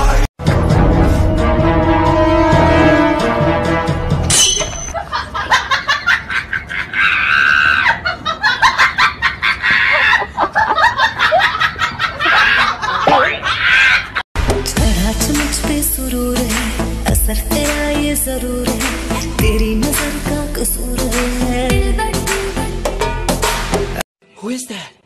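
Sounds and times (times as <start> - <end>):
music: 0.0 - 4.4, 14.4 - 25.0
women screaming and laughing: 5.0 - 14.2.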